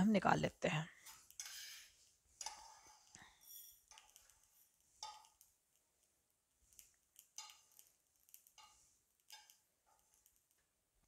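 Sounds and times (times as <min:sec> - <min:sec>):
metal spoon scraping frying pan: 0:01.1 - 0:05.4, 0:06.8 - 0:10.2.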